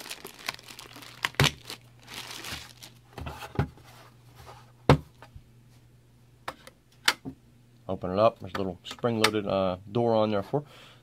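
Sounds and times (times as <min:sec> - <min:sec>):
plastic bag crinkling: 0:00.0 - 0:03.1.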